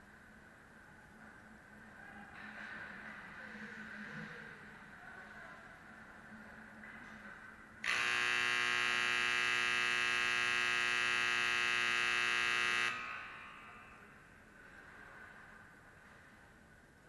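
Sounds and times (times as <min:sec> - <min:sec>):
scoreboard buzzer blast: 0:07.8 - 0:14.2.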